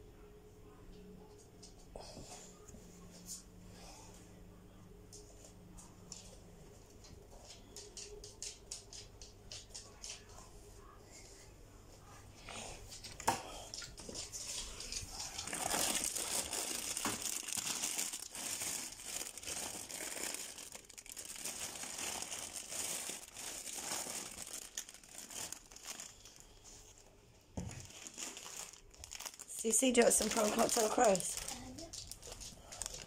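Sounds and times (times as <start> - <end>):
crinkling and rustling: 12.8 - 33.0.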